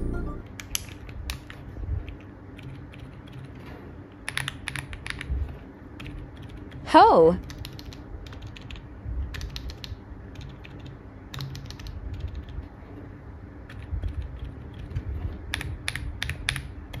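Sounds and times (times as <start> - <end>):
soft muffled keyboard keystrokes: 7.4 - 12.6.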